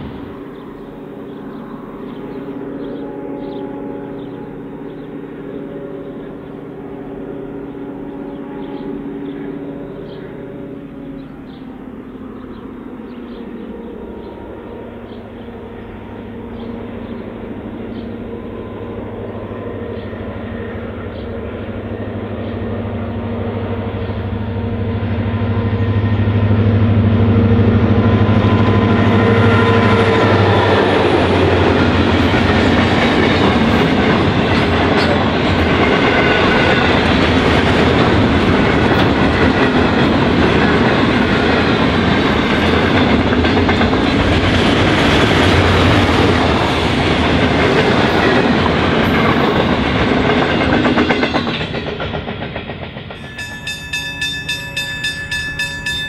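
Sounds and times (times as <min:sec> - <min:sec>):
multi-tone train horn: 0:00.0 - 0:51.6
train wheels clicking over rails: 0:28.1 - 0:56.0.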